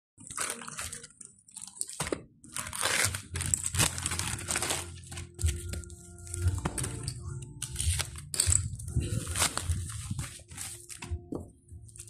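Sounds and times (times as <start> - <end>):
plastic bag crinkling: 0.2 - 5.7.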